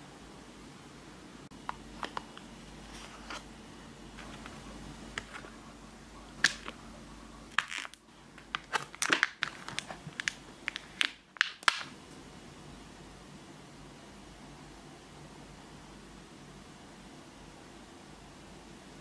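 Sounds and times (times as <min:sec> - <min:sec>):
plastic mold crackling and clicking: 0:07.5 - 0:11.9.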